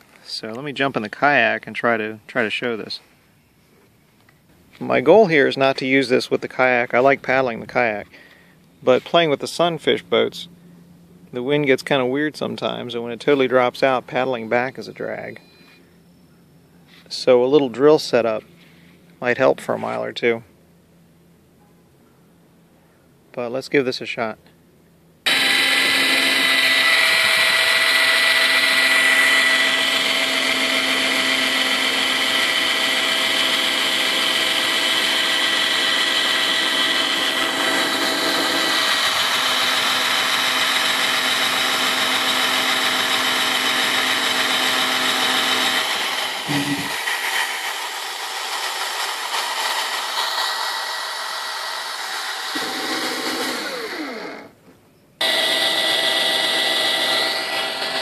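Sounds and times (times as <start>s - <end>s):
cordless drill motor whining: 25.3s - 54.6s, 55.2s - 58.0s.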